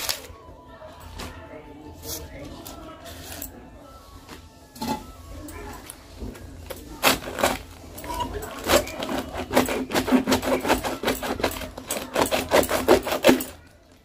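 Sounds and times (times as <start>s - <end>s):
knife slicing cabbage: 6.6s - 13.7s.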